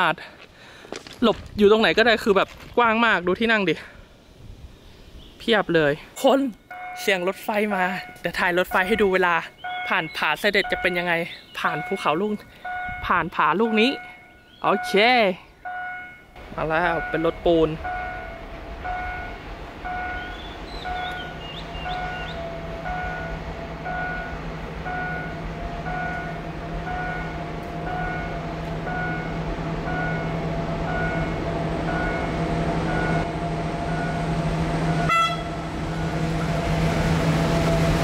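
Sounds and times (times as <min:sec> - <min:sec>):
diesel locomotive drone: 0:00.0 - 0:38.0
warning loudspeaker beeping: 0:06.7 - 0:36.3.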